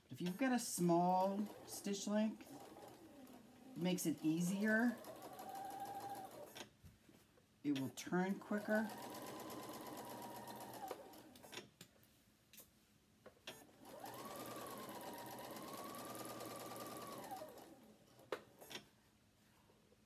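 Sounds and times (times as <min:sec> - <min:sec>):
sewing machine stitching: 0:00.2 - 0:06.7, 0:07.8 - 0:11.6, 0:13.5 - 0:18.8.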